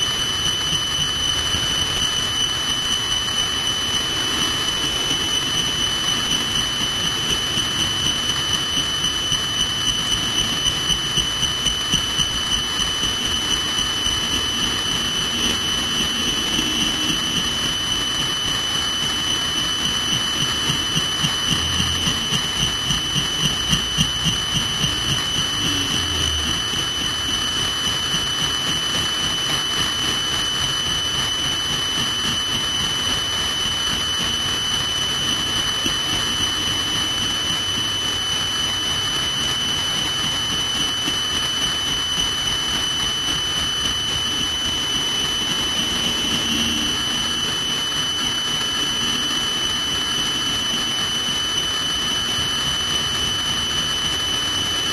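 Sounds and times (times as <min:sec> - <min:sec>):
helicopter turbine whine: 0:00.0 - 0:54.9
rotor pulsing beat: 0:00.2 - 0:29.6, 0:42.7 - 0:49.4.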